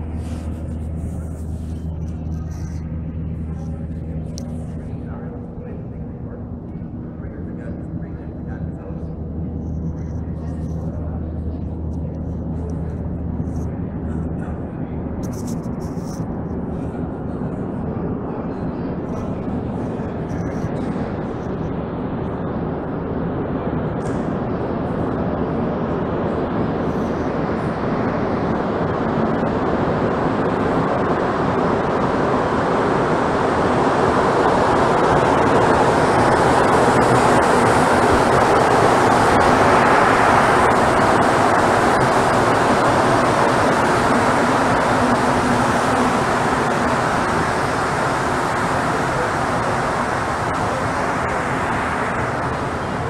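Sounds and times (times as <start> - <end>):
metro train approaching: 16.6 - 53.0.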